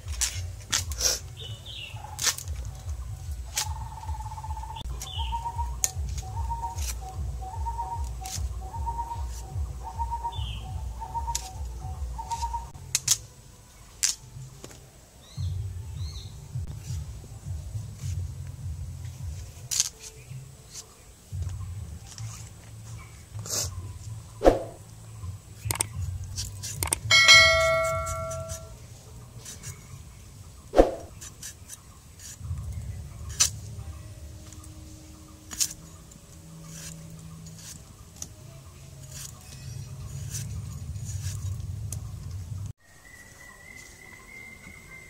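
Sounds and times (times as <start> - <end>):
loud bell-like ring: 27.1 - 28.8.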